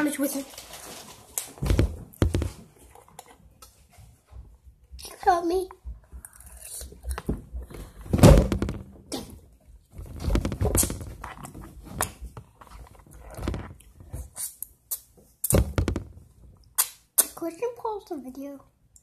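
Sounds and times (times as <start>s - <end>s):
knocks bumps and rustles: 7.4s - 9.1s, 9.9s - 12.5s, 15.6s - 16.2s
thunk: 8.1s - 8.9s.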